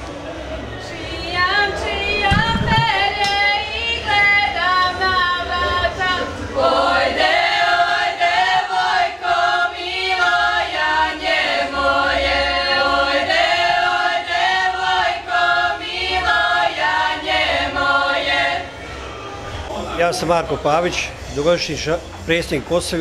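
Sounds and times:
women singing unaccompanied: 0.8 - 18.8.

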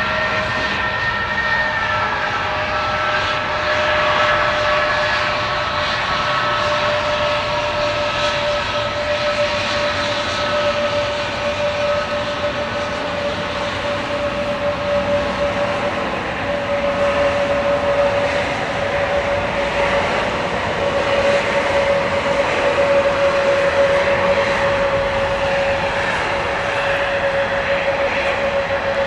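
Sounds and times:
jet engines whining: 0.0 - 29.0.

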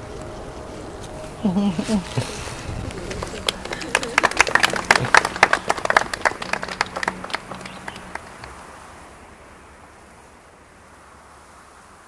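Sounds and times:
faint hiss: 0.0 - 12.0
people applauding: 2.2 - 8.6.

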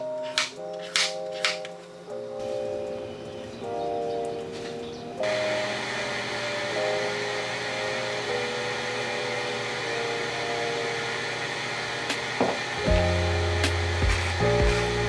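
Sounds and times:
soft background music: 0.0 - 15.0
machine whirring with low hum: 5.2 - 15.0.

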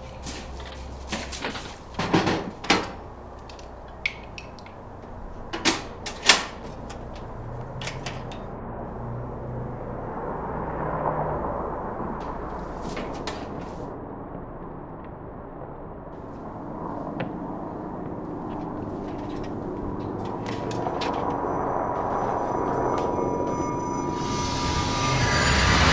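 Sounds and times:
metal toolbox clunks on wood: 1.5 - 3.0.

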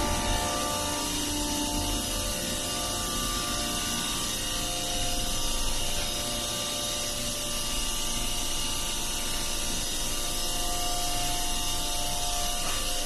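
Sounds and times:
machinery hiss: 0.0 - 7.6
machinery hum tones: 0.0 - 13.0.

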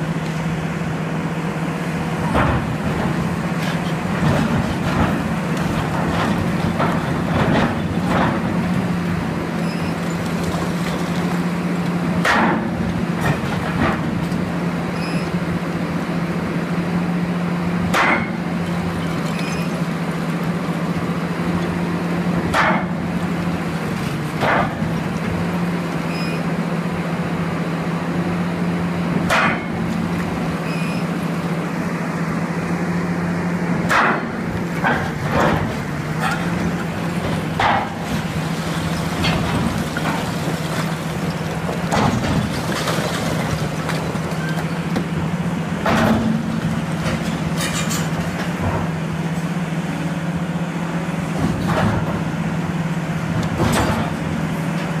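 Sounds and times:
excavator engine drone: 0.0 - 55.0
hydraulic breaker hammering rock: 2.2 - 14.5, 17.8 - 26.4, 29.1 - 31.1, 33.7 - 49.0
sharp cracks and knocks: 12.2 - 14.0, 33.9 - 36.5.

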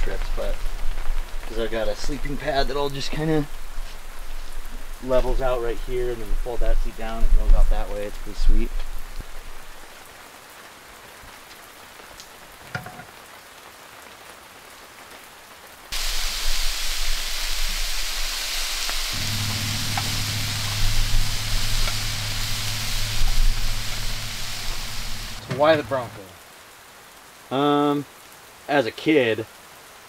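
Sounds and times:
meat sizzling in frying pan: 15.9 - 25.4
steady low hum: 16.6 - 26.2.

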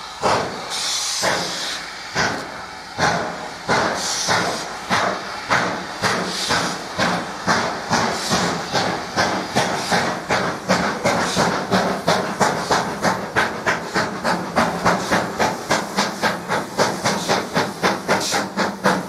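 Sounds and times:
steam hissing: 0.0 - 19.0
steam locomotive exhaust beats: 0.0 - 19.0.

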